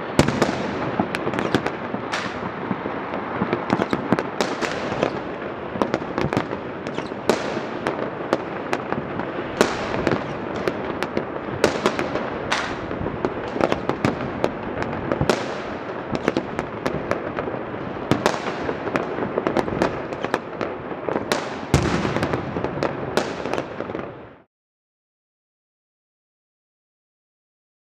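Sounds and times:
fireworks crackling and banging: 0:00.0 - 0:24.5.

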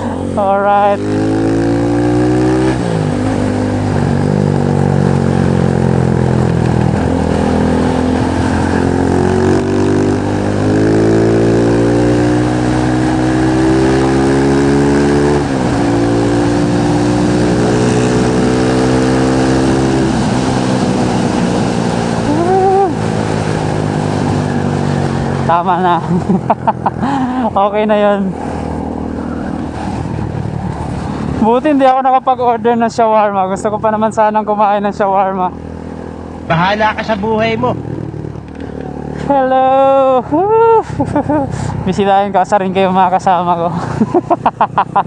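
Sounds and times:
motorcycle engine shifting gears: 0:00.0 - 0:31.6, 0:35.5 - 0:41.9
wind rush: 0:28.1 - 0:31.5.

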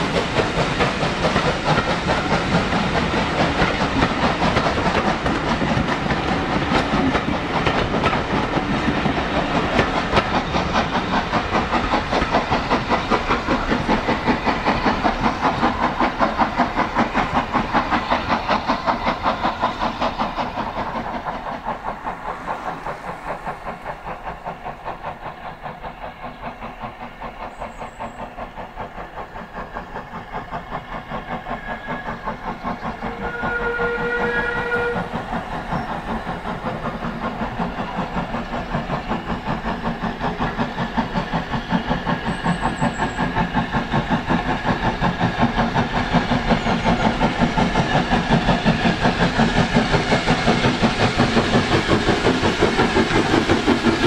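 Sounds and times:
train wheels clattering: 0:00.0 - 0:54.0
steam locomotive whistle: 0:33.0 - 0:35.9.

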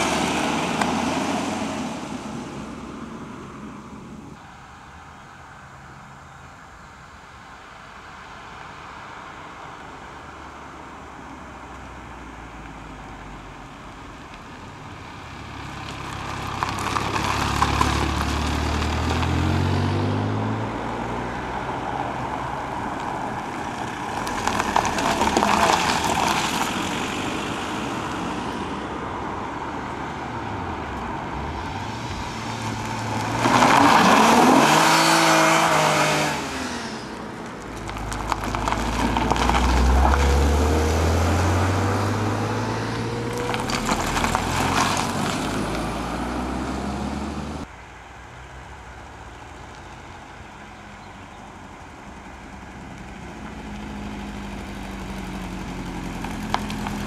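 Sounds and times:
cars driving past revving: 0:00.0 - 0:04.4, 0:15.1 - 0:47.7.

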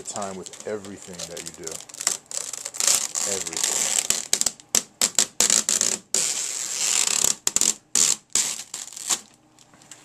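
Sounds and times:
plastic film crinkling: 0:00.0 - 0:10.0.

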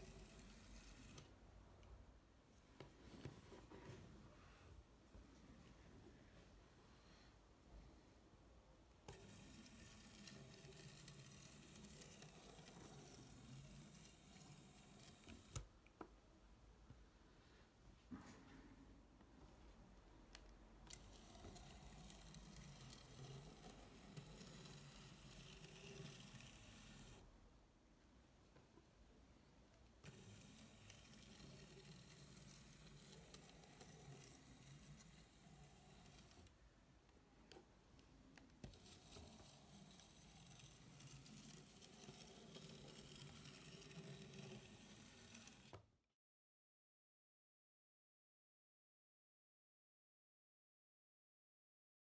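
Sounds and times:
model locomotive motor whirring: 0:00.0 - 0:01.3, 0:09.1 - 0:15.7, 0:20.9 - 0:27.2, 0:30.0 - 0:36.5, 0:38.6 - 0:45.8.

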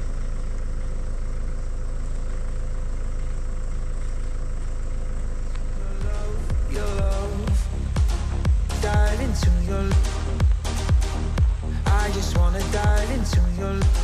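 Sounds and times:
vehicle engine rumbling: 0:00.0 - 0:14.0
music: 0:06.0 - 0:14.0.

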